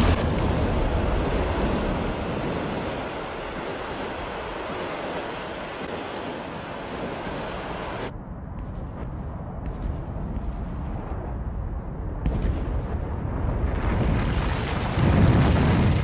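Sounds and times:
meteor explosion roar: 0.0s - 16.0s.

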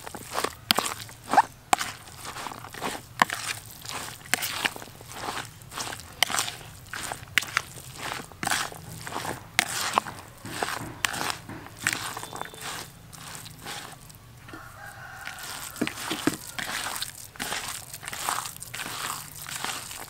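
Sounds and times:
hands squishing minced meat: 0.0s - 20.0s
rooster crowing: 13.8s - 17.1s.

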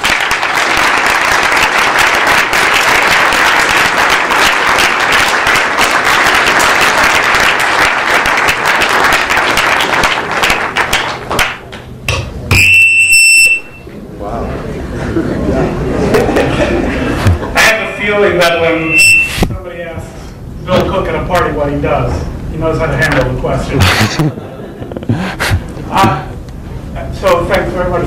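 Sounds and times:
audience applauding: 0.0s - 11.8s.

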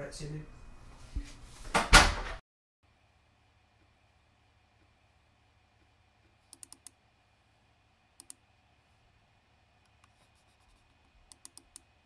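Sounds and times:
faint steady hum: 2.8s - 12.0s
mouse buttons clicking: 6.5s - 7.0s, 11.3s - 11.9s.

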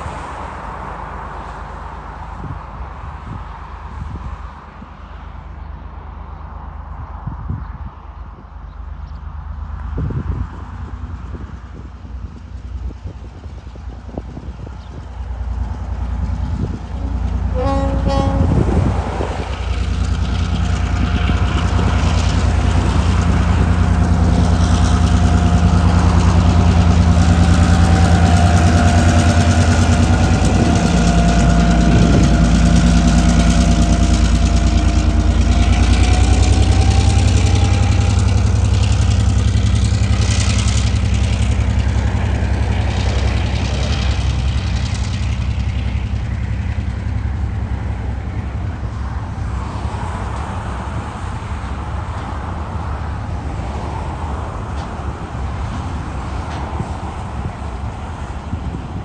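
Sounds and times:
diesel locomotive engines droning: 0.0s - 59.0s.

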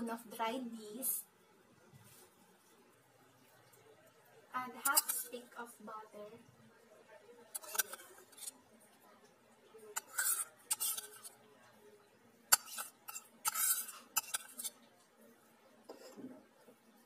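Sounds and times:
spoon scraping bowl: 4.8s - 5.3s, 7.5s - 8.6s, 9.9s - 11.4s, 12.5s - 14.9s, 15.9s - 16.4s
spoon clinking on bowls: 12.5s - 14.8s.

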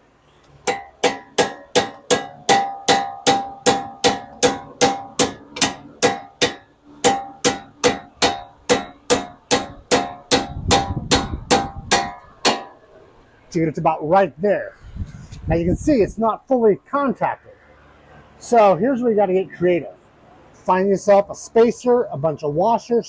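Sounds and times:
hammer blows on metal: 0.6s - 12.8s.

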